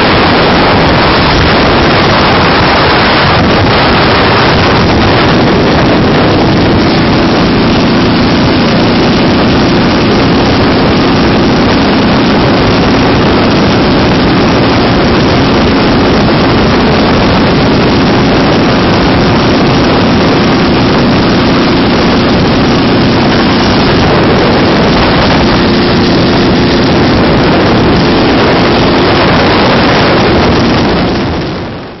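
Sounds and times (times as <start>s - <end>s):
motorcycle engine running: 0.0s - 32.0s
wind on microphone: 0.0s - 32.0s.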